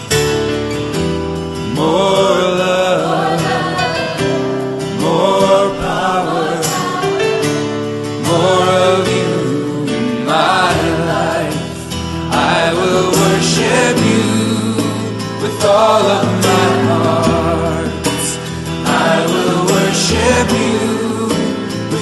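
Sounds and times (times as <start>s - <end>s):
sustained instrumental backing: 0.0s - 22.0s
worship song with sung vocals: 1.6s - 22.0s.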